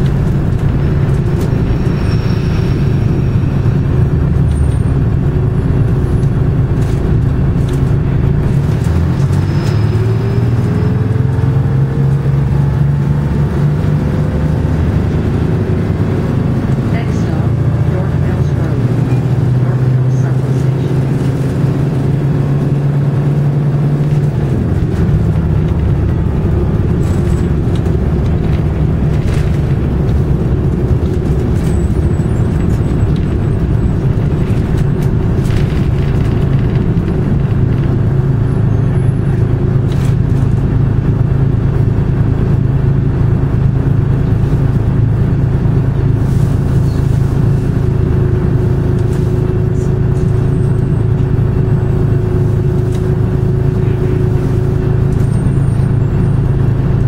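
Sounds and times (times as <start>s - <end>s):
bus diesel engine drone: 0.0s - 57.0s
faint rattles and clicks: 24.0s - 38.3s.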